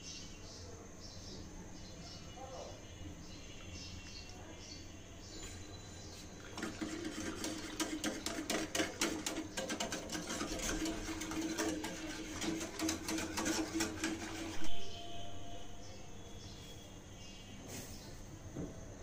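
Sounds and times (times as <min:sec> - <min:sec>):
whisk clicking against metal pan: 0:06.6 - 0:14.8.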